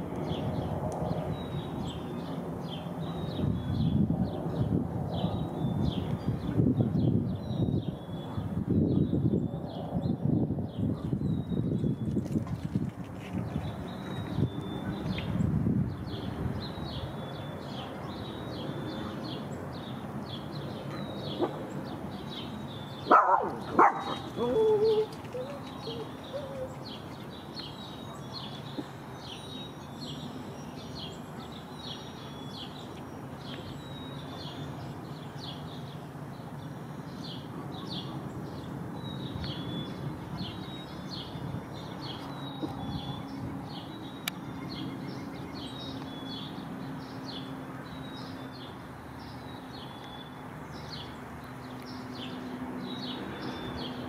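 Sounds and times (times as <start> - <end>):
songbirds chirping: 0.0 - 54.0
dog barking: 23.1 - 25.0.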